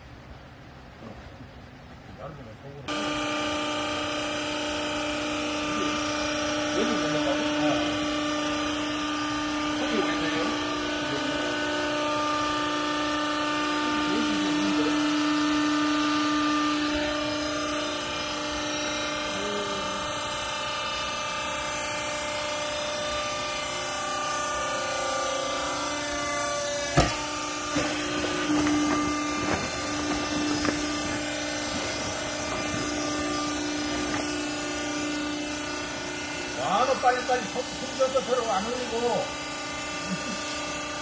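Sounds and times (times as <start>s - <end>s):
hydraulic power unit humming: 0.0s - 41.0s
sharp knocks: 26.8s - 34.4s.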